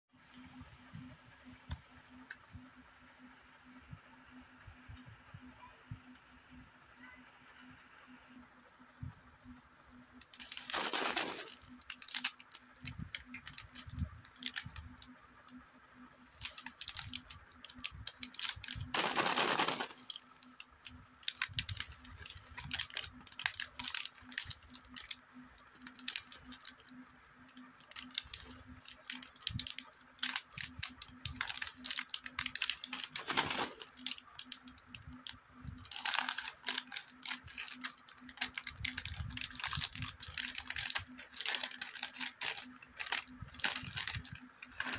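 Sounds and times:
plastic packet crinkling: 10.4s - 12.5s, 16.4s - 19.9s, 21.3s - 25.1s, 27.9s - 34.8s, 35.8s - 44.9s
scissors cutting plastic: 35.8s - 44.3s.

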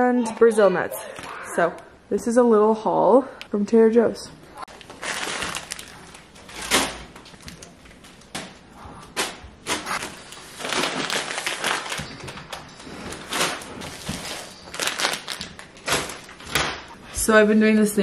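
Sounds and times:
plastic packaging rustling: 4.7s - 17.0s.

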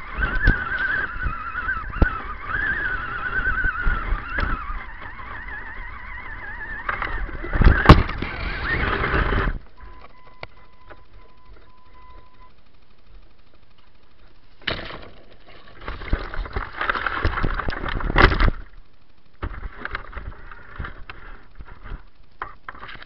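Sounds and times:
electric motor whining: 0.0s - 13.3s
faint steady tone: 0.0s - 23.0s
faint ticks: 0.2s - 14.6s, 15.2s - 23.0s.

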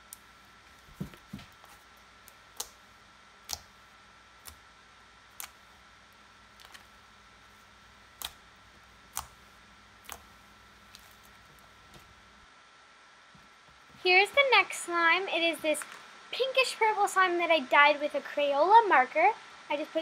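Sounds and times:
slime being squished: 8.1s - 8.4s, 10.0s - 12.1s.

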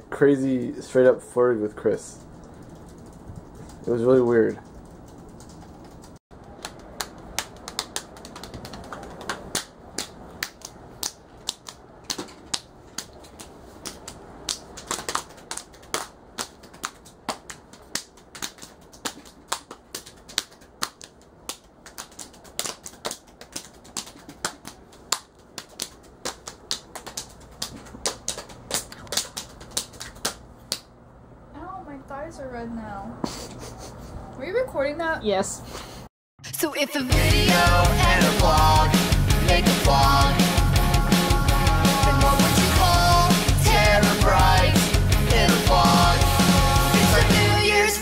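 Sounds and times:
sharp dry clicks: 2.2s - 7.6s.

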